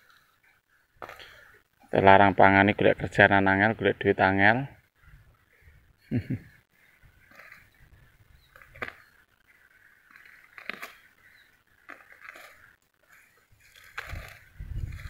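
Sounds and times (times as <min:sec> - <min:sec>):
dry stubble crunching and rustling: 0:07.2 - 0:15.0.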